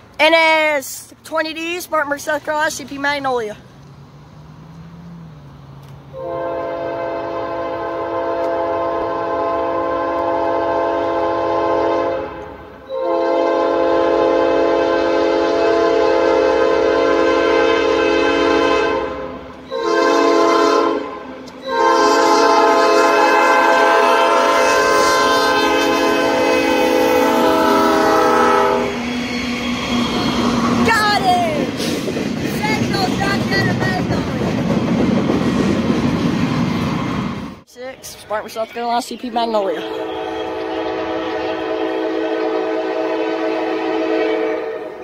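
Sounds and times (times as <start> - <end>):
locomotive air horn blasts: 6.1 - 29.0, 39.8 - 45.0.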